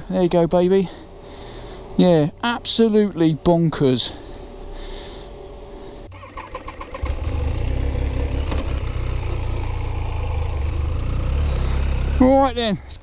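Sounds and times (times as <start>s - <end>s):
motorcycle engine starting and idling: 6.0s - 12.6s.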